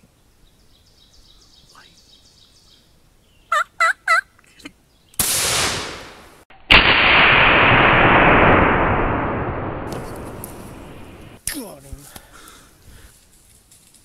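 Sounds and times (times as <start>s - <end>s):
turkey yelps: 3.5s - 4.3s
shotgun blasts: 5.2s - 11.4s.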